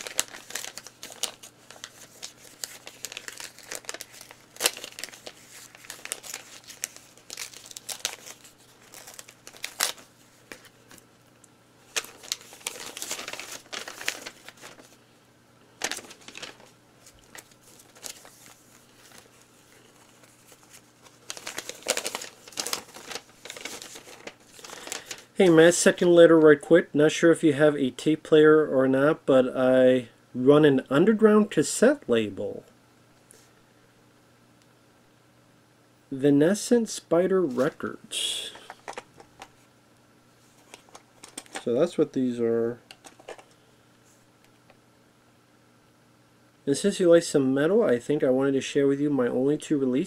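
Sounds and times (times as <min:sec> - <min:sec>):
paper rustling and crinkling: 0:00.0 - 0:11.0, 0:11.9 - 0:15.0, 0:15.8 - 0:25.7, 0:38.5 - 0:39.6, 0:40.4 - 0:42.0, 0:42.9 - 0:43.6.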